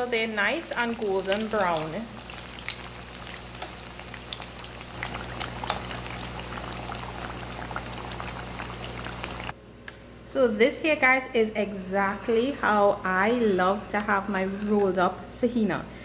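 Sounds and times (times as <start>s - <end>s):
food deep-frying in hot oil: 0.0s - 9.5s.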